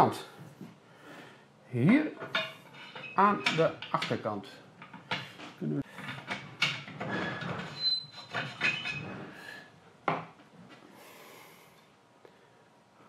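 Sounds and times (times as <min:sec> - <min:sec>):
metal parts clattering and scraping: 0:02.2 - 0:09.4.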